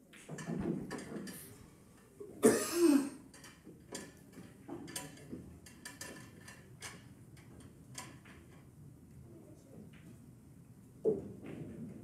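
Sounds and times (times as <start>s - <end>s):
billiard balls clicking: 3.3s - 8.7s.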